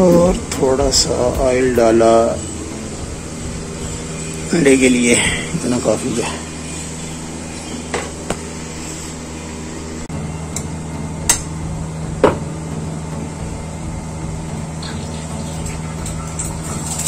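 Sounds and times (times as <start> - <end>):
hot oil hissing: 0.0 - 9.9.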